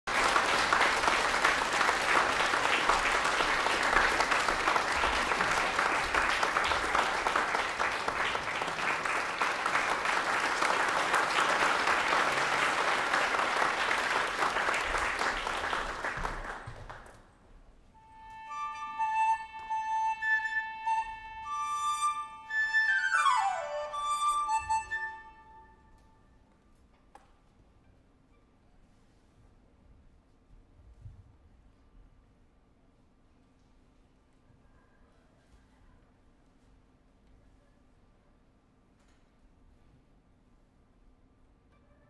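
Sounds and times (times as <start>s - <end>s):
audience applause: 0.0s - 17.2s
bamboo flute playing held notes: 18.0s - 26.2s.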